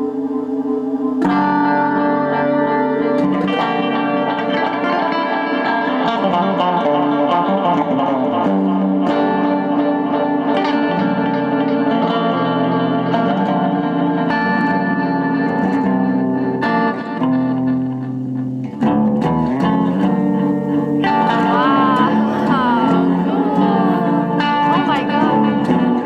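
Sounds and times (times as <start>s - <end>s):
sustained held tones: 0.0s - 6.1s, 19.8s - 25.9s
plucked guitar with reverb: 0.0s - 26.0s.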